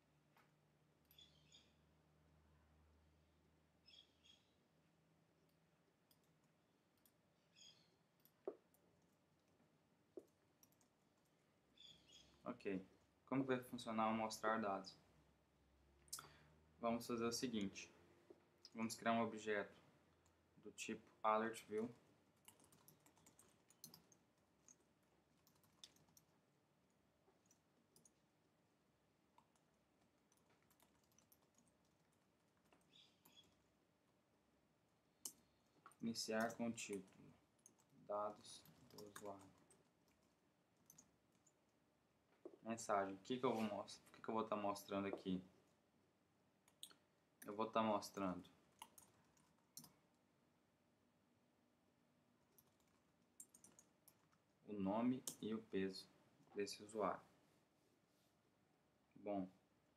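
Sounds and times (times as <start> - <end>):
computer keyboard keystrokes: 22.4 - 24.8, 25.4 - 26.3, 30.3 - 32.0, 52.6 - 54.3.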